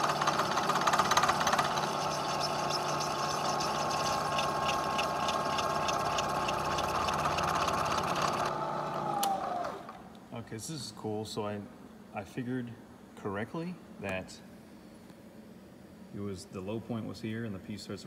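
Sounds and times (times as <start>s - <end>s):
spindle winding down: 0.0s - 10.0s
spindle whine and hum: 0.0s - 18.0s.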